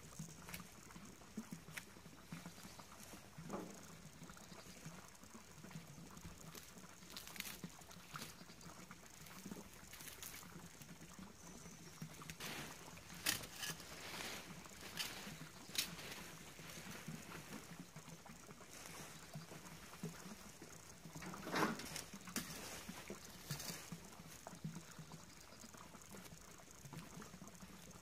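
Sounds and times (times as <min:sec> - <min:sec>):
dry leaves rustling and crackling: 0:06.4 - 0:08.4, 0:09.2 - 0:10.7, 0:12.2 - 0:17.8, 0:21.3 - 0:24.5.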